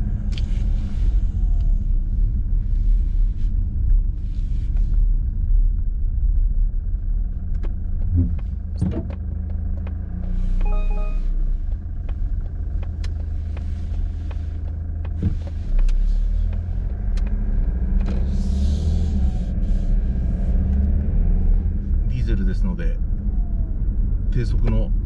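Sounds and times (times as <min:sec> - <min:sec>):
car engine low drone: 0:00.0 - 0:25.0
short beep: 0:10.6 - 0:11.4.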